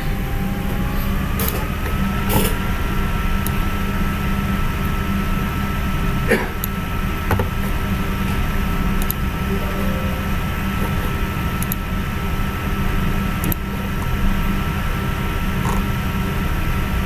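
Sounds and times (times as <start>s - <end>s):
faint high tone: 9.4s - 13.0s.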